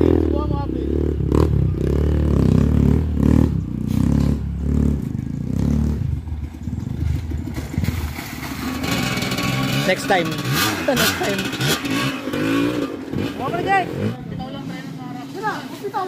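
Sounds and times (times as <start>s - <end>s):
dirt bike engine at low revs: 0.0s - 15.3s.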